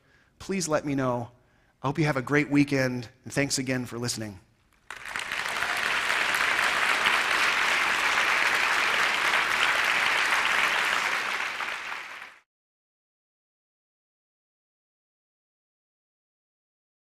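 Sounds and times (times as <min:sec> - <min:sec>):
large audience applauding: 0:04.8 - 0:12.4.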